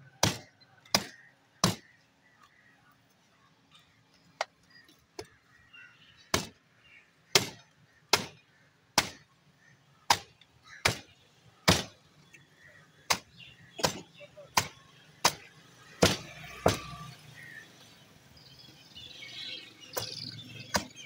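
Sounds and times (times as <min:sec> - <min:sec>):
cleaver chopping bone on wood: 0:00.2 - 0:01.9.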